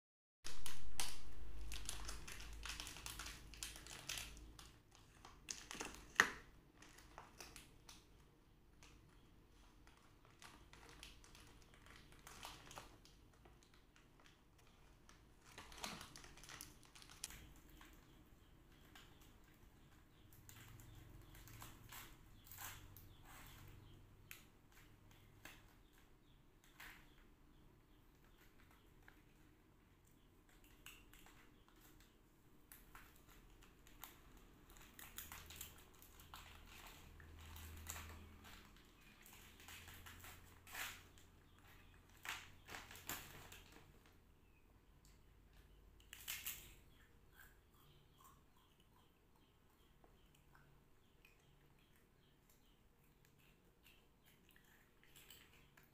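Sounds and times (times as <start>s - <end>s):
plastic bag crinkling: 0.5s - 7.7s, 10.0s - 18.0s.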